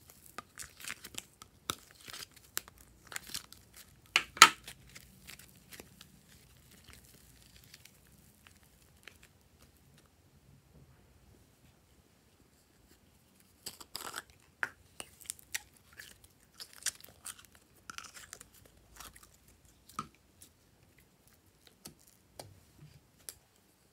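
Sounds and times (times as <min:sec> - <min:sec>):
modelling clay crackling and tearing: 0:00.0 - 0:09.4, 0:13.4 - 0:22.5.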